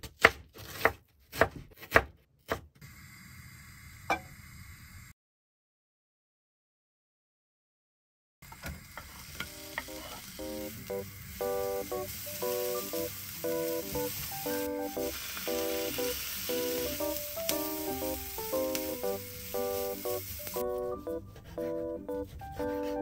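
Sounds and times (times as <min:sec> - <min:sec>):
onion sizzling in a pan: 0:08.4 - 0:21.8.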